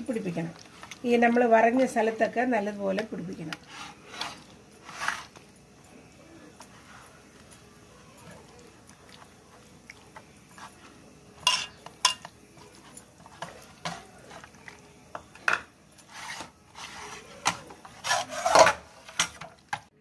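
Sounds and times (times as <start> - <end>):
wet squishing of marinade: 0.0 - 1.8.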